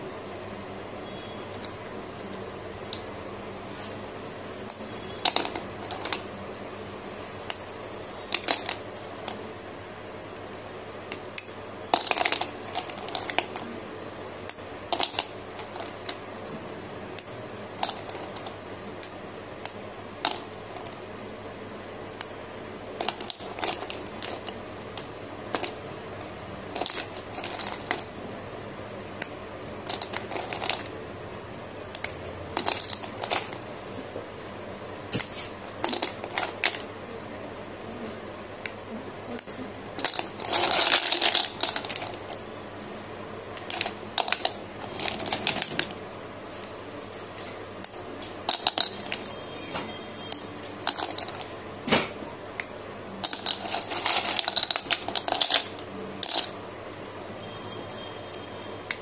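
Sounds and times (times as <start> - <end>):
slate pencils clicking together: 4.7 - 6.3, 8.3 - 9.4, 10.4 - 13.7, 14.4 - 16.2, 17.2 - 21.0, 23.0 - 25.8, 26.7 - 28.1, 29.2 - 30.9, 31.9 - 33.6, 35.2 - 36.9, 38.6 - 42.4, 43.6 - 46.0, 47.8 - 49.3, 50.2 - 51.6, 52.6 - 57.1.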